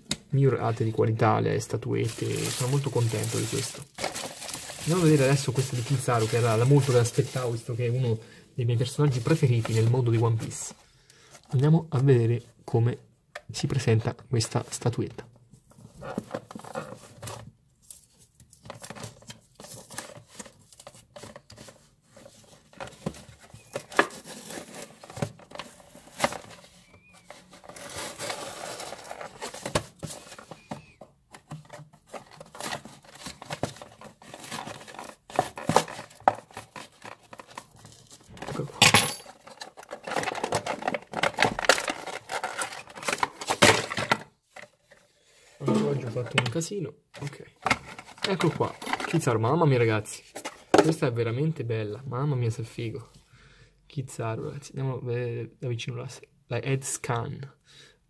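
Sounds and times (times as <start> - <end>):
plastic packaging crinkling: 2.0 - 8.0, 23.4 - 31.0, 32.1 - 44.2.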